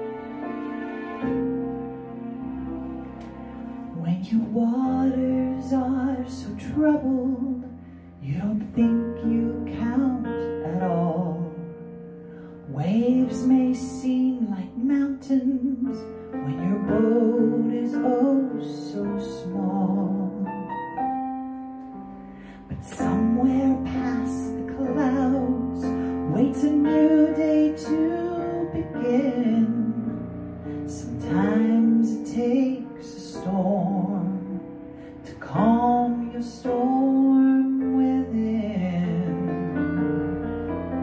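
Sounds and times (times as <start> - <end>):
woman singing into a microphone: 22.7 - 30.2, 30.9 - 34.6.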